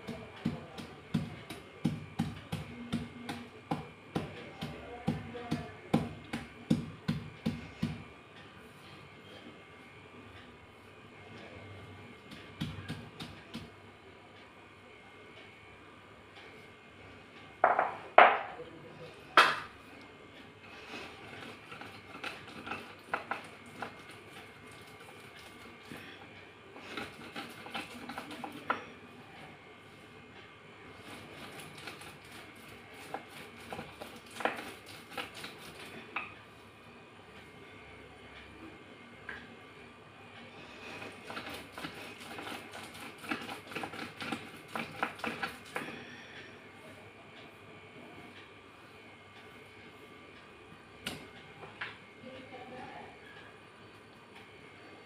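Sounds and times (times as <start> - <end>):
metal rolling pin on stone: 31.2 - 35.9, 41.0 - 45.9.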